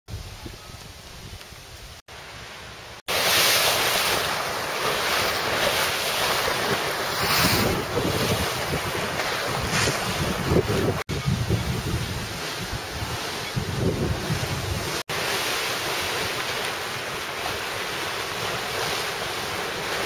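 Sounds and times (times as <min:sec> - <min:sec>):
waves breaking against stone wall: 0:03.1 - 0:11.1, 0:11.8 - 0:20.0
wind buffeting on microphone: 0:06.2 - 0:15.0
strong wind: 0:06.5 - 0:15.3.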